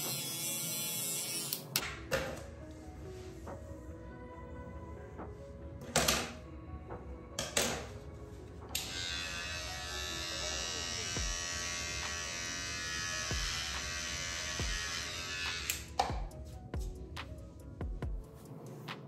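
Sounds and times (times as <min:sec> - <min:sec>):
electric hair trimmer buzzing: 0:00.0 - 0:01.8, 0:08.8 - 0:16.0.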